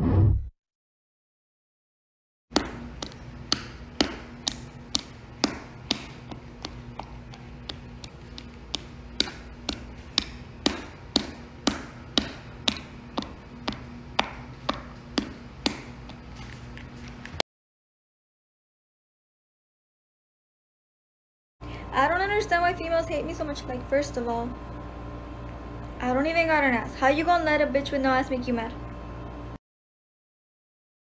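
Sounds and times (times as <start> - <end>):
sharp taps: 2.6 - 16.2.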